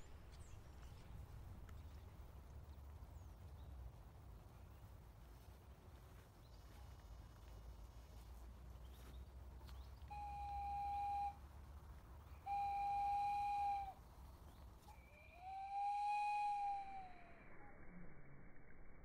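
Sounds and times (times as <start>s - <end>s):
long whistle-like notes: 10.1s - 11.4s, 12.4s - 14.0s, 14.9s - 18.9s.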